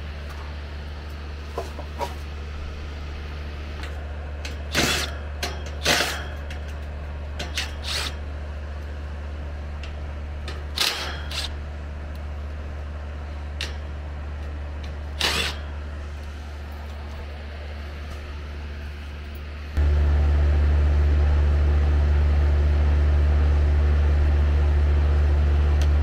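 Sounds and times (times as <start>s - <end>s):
steady low hum: 0.0s - 26.0s
cordless drill driving screws: 7.6s - 8.2s, 10.8s - 11.5s, 15.1s - 15.7s.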